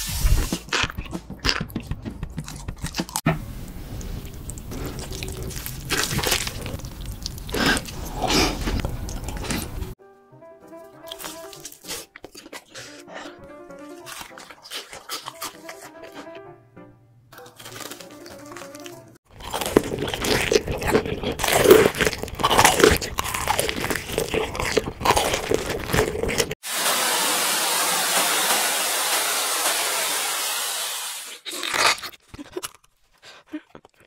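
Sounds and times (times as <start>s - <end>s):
crunchy chewing of fried food: 0.2s - 3.2s, 3.9s - 10.0s, 11.0s - 16.4s, 17.4s - 26.6s, 31.3s - 34.0s.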